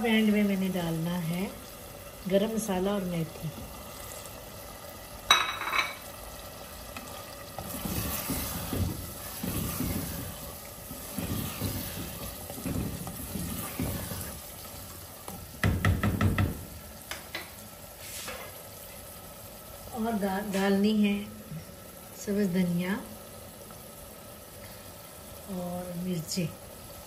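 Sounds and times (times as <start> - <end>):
wooden spatula scraping clay pot: 7.0 - 14.5.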